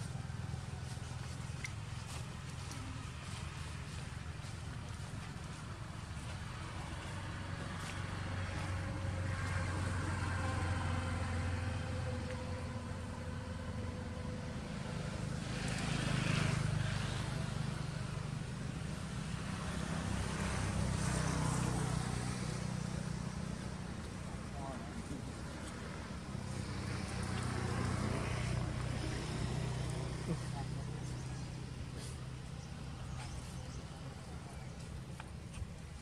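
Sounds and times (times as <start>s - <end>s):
motor vehicles rumbling: 0.0s - 36.0s.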